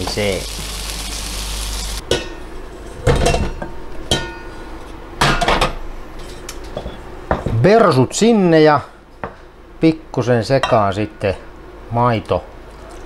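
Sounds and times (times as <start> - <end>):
stove hissing: 0.0 - 2.0.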